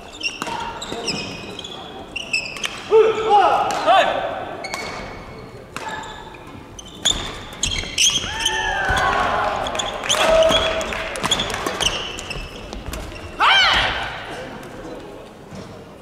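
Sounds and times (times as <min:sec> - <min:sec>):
shoes squeaking on floor: 0:00.0 - 0:02.9, 0:04.6 - 0:13.8.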